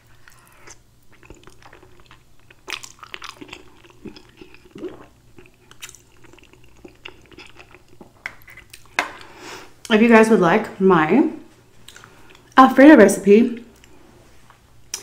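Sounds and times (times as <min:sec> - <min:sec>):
person chewing food: 0:00.0 - 0:09.9, 0:11.8 - 0:12.6.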